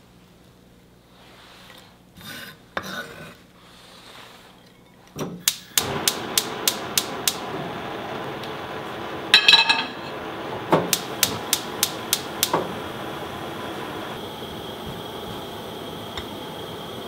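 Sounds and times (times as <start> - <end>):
gas flame hissing: 5.2 - 17.0
gas igniter clicking: 5.4 - 7.6, 9.3 - 14.2
metal pan clattering on grate: 9.4 - 10.1.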